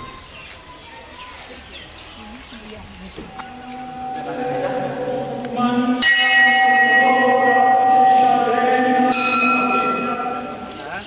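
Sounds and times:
brass bell ringing: 3.5 - 10.7.

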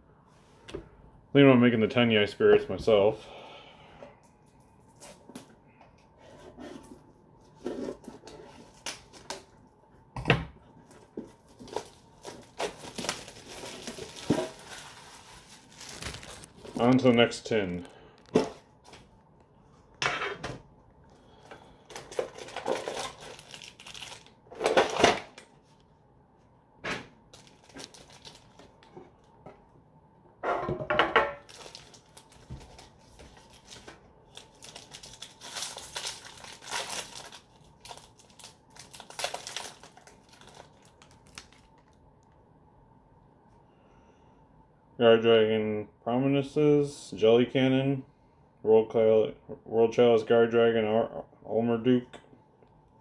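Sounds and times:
plastic packaging crinkling: 10.8 - 18.5, 21.8 - 25.5, 27.3 - 29.3, 31.4 - 42.0.

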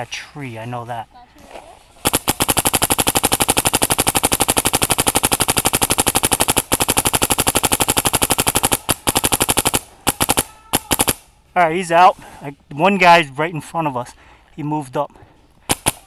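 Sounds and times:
paintball marker rapid firing: 2.0 - 11.3, 15.6 - 16.0.

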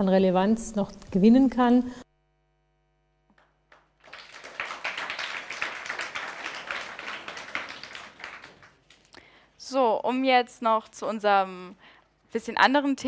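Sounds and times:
small audience applauding: 3.3 - 9.2.

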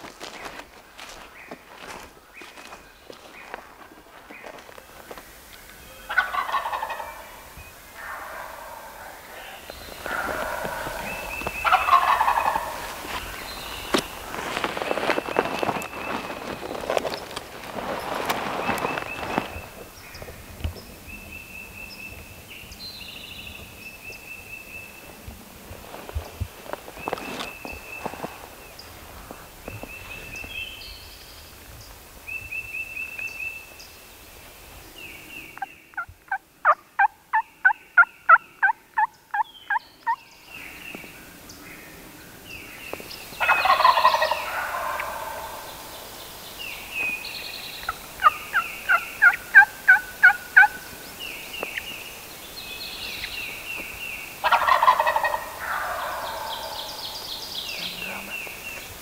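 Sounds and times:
songbird chirps: 0.0 - 59.0
turkey gobbling: 6.0 - 13.3, 36.0 - 40.2, 43.4 - 46.0, 47.8 - 50.9, 54.4 - 57.2
turkey yelps: 6.1 - 7.4, 8.0 - 12.8, 43.4 - 45.6, 54.4 - 56.9.

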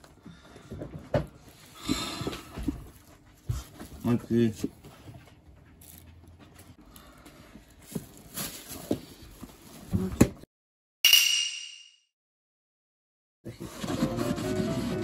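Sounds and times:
bright ringing sound effect: 11.1 - 12.1.

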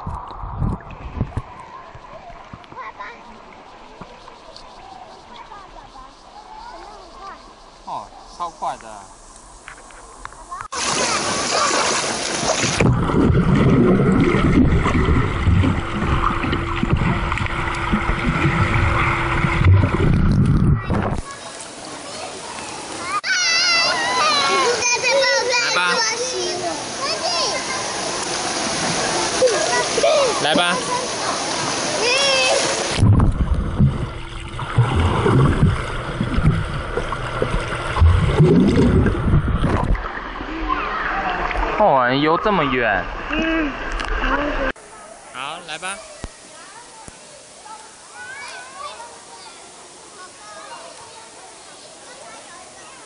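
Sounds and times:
underwater rumble and gurgle: 0.0 - 2.8, 12.6 - 21.3, 32.9 - 41.8
pool water splashing: 0.0 - 53.0
steady low hum: 12.8 - 21.2, 32.9 - 41.8.

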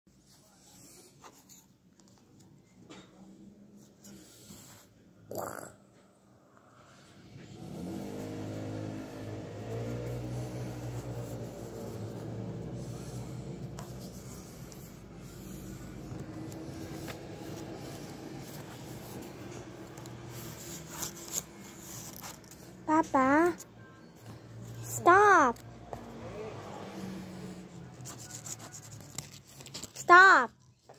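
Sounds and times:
engine running: 7.0 - 28.7.

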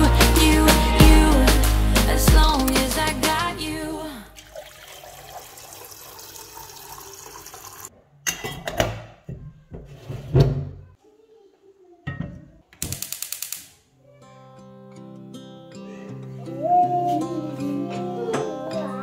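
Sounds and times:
water running: 4.3 - 7.9.

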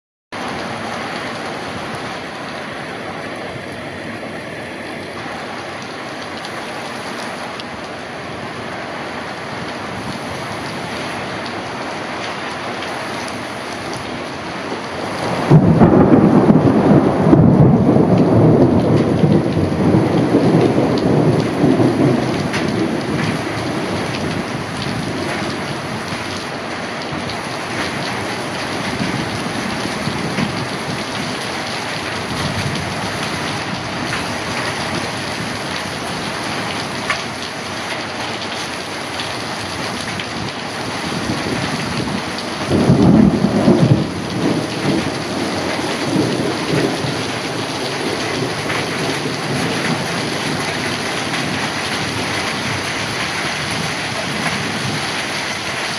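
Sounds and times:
heavy rain falling: 0.4 - 55.9
thunder rolling: 15.0 - 26.1, 40.4 - 52.9
loud thunder peal: 15.2 - 23.4, 41.1 - 50.6.

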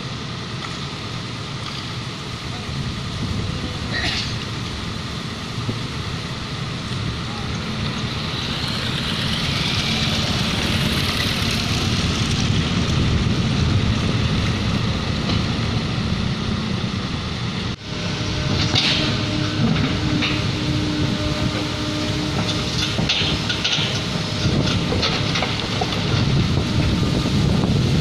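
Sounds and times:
dump truck driving: 0.0 - 28.0
excavator diesel engine rumble: 0.0 - 28.0
motorbikes driving: 6.4 - 15.2.

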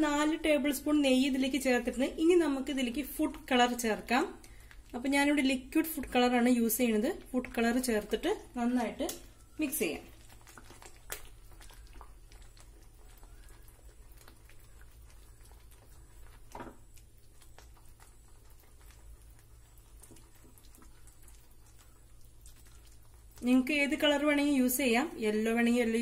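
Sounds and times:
whisk stirring thick mixture: 1.4 - 26.0
whisk tapping pan: 5.1 - 25.0.

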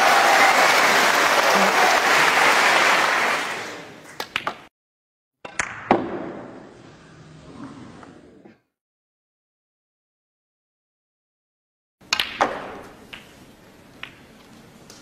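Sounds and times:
audience applause: 0.0 - 4.0
snooker balls clicking: 12.0 - 15.0.

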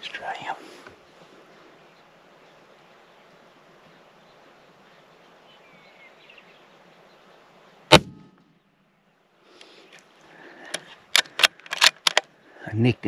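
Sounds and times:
faint wind: 0.0 - 13.0
rifle shot: 7.9 - 8.4.

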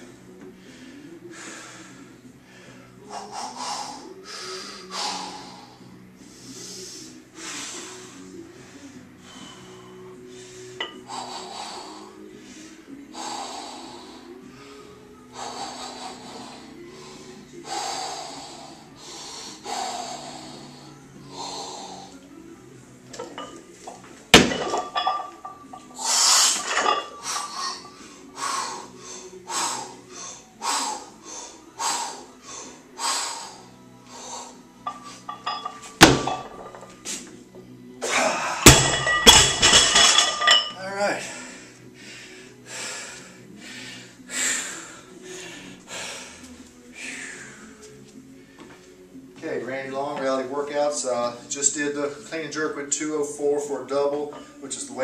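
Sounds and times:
quiet background music: 0.0 - 55.0
man breathing heavily: 0.1 - 22.4, 23.1 - 37.3, 38.1 - 49.2
barbell and plates clanking: 23.2 - 27.8, 34.9 - 36.8, 38.6 - 40.8.

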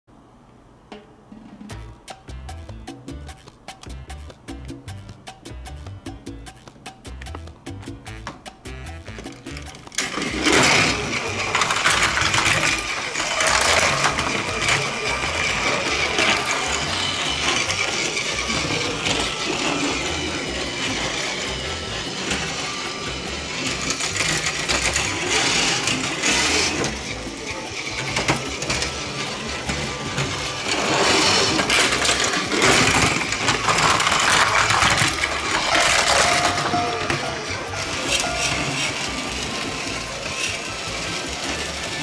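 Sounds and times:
music playing: 1.3 - 42.0
toy train motor whirring: 7.3 - 42.0.

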